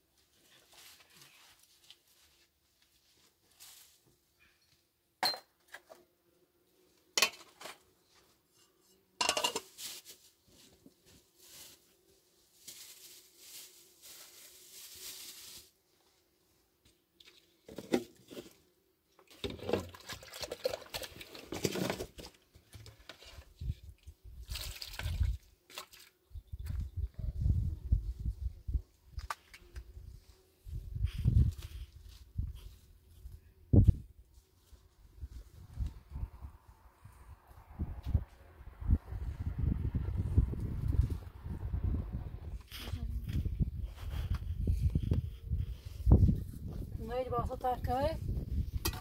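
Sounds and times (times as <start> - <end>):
metal pots and dishes clinking: 9.2 - 9.7.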